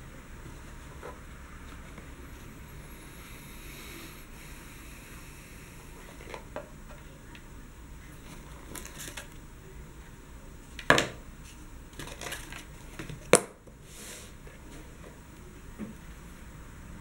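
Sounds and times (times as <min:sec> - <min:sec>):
cardboard and paper rustling: 0:08.0 - 0:09.3, 0:12.0 - 0:13.3.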